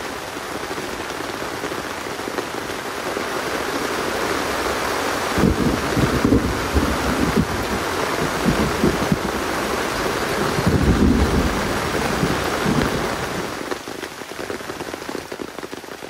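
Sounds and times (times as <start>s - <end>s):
heavy rain falling: 0.0s - 16.0s
low rumbles: 5.4s - 13.4s.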